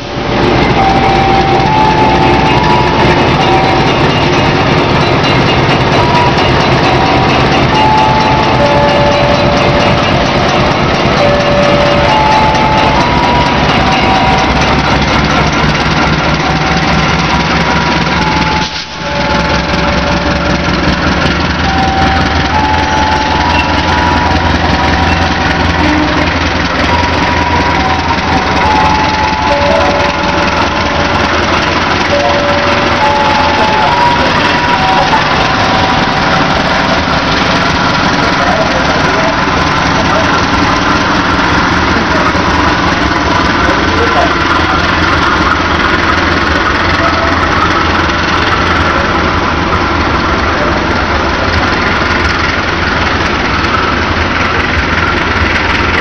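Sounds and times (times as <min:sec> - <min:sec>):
diesel engine rumble: 0:00.0 - 0:56.0
train coaches passing: 0:00.0 - 0:56.0.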